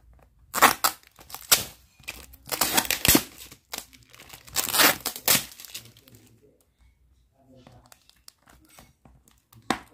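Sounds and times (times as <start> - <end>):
packaging rustling and crinkling: 0.5 - 6.3.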